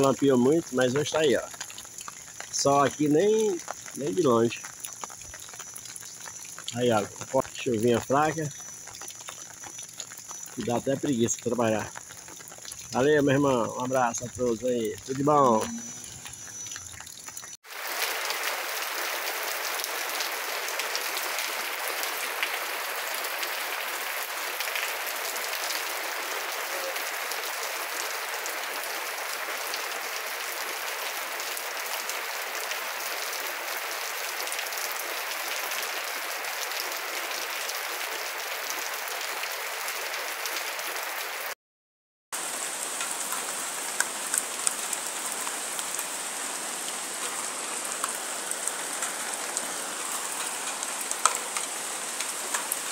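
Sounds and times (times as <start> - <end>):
steady rain falling: 0.0 - 41.6, 42.4 - 52.9.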